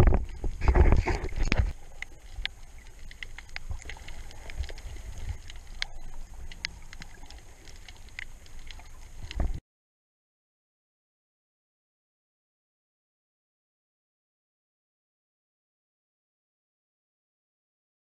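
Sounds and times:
low underwater rumble: 0.0s - 9.6s
sharp clicks and crackles: 0.0s - 9.6s
underwater water rushing: 0.0s - 9.6s.

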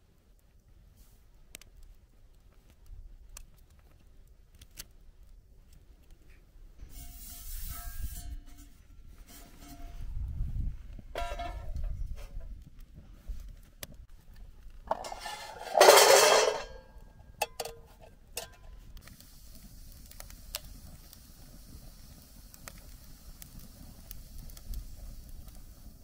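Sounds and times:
wood fire hissing and crackling: 0.0s - 26.0s
chestnuts rattling in metal pan: 14.9s - 16.6s.

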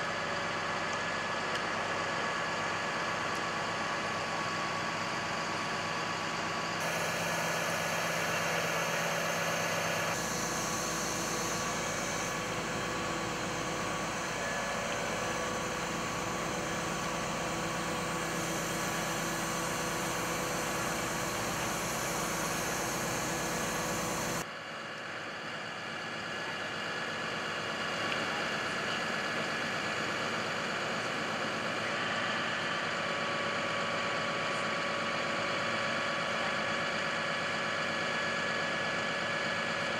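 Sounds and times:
truck engine and hydraulics: 0.0s - 39.9s
hydraulic whining tones: 6.8s - 24.4s.

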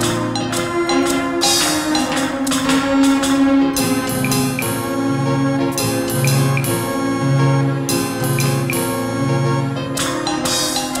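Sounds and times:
band music with drums: 0.0s - 4.8s.

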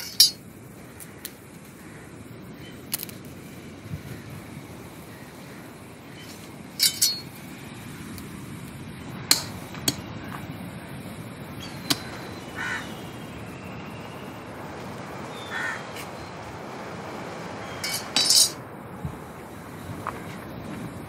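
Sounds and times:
crow cawing: 0.9s - 2.2s, 5.1s - 5.8s, 12.0s - 13.1s, 15.3s - 15.9s.

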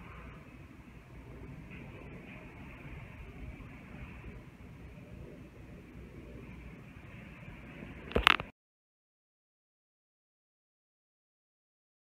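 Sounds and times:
jet airliner engines rumbling: 0.0s - 8.5s.

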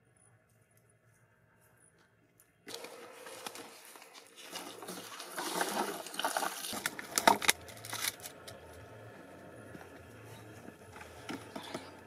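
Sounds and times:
footsteps on loose soil: 2.6s - 6.8s
plastic bottles crinkling: 2.7s - 8.5s.

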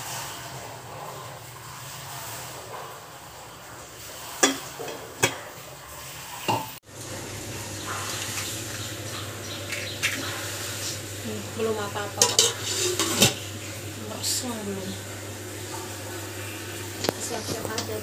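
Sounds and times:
water boiling in a pot: 0.0s - 18.0s
pot lid clinking: 4.4s - 5.4s, 12.1s - 13.4s.

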